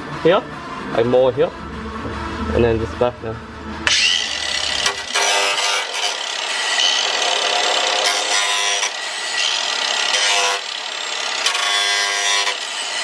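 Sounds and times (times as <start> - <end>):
angle grinder sanding fiberglass: 3.9 - 13.0.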